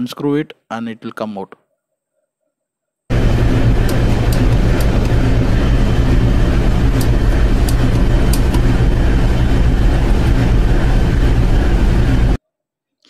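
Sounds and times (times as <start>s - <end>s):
engine room machinery drone: 3.1s - 12.4s.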